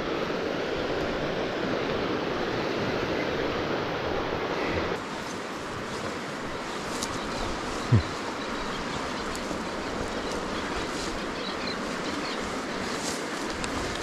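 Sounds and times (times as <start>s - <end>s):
fast-flowing river rushing: 0.0s - 14.0s.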